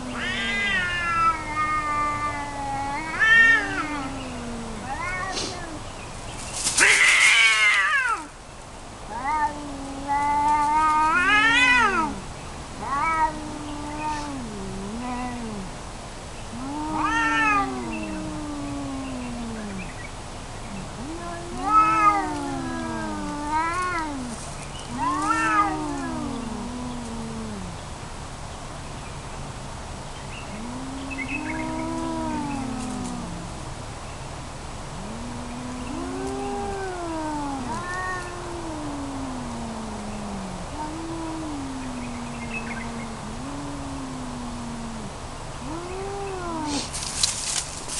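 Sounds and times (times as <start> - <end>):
tomcats yowling: 0.0 - 5.8, 6.8 - 8.3, 9.1 - 15.8, 16.5 - 20.0, 20.7 - 27.8, 30.5 - 33.7, 34.9 - 47.6.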